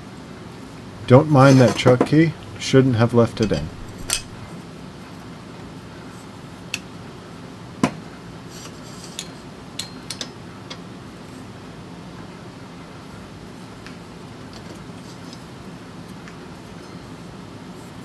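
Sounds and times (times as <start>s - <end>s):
low steady hum: 1.0s - 4.5s
metal brake disc clinking: 3.3s - 4.5s.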